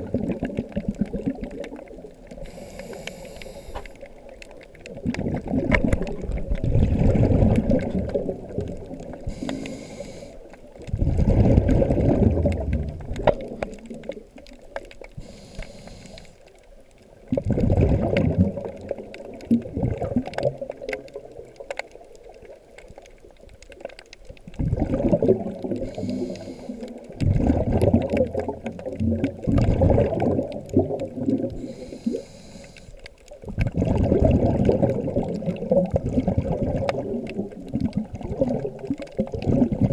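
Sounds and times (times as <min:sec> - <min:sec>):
exhaled bubbles rushing: 0:00.0 - 0:02.7, 0:04.0 - 0:09.5, 0:10.7 - 0:15.2, 0:17.1 - 0:22.6, 0:24.4 - 0:32.2, 0:33.4 - 0:39.9
regulator inhale hiss: 0:02.4 - 0:04.1, 0:09.2 - 0:10.6, 0:15.2 - 0:16.5, 0:25.8 - 0:27.1, 0:31.6 - 0:33.1.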